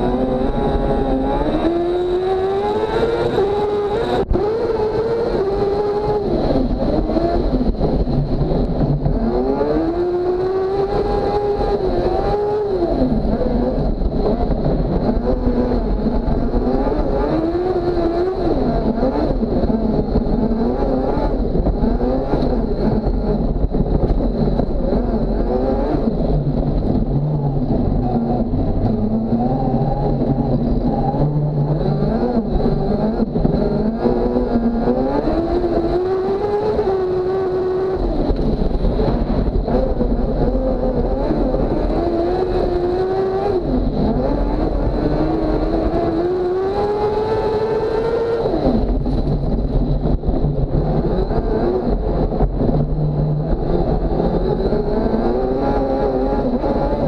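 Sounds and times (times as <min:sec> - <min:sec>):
buggy engine revving: 0:00.0 - 0:57.0.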